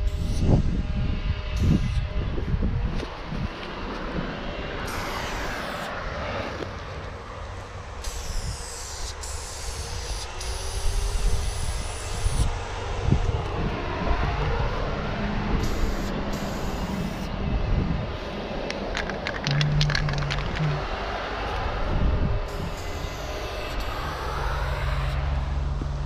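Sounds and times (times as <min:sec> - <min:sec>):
continuous low rumble: 0:00.0 - 0:26.0
spray paint can hissing: 0:08.0 - 0:12.3.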